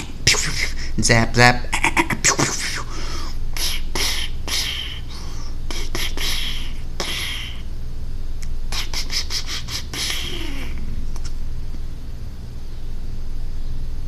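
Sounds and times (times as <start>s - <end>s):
person making hissing gun sounds: 0.0s - 1.0s, 1.8s - 7.7s, 8.7s - 11.0s
steady low hum: 0.0s - 14.0s.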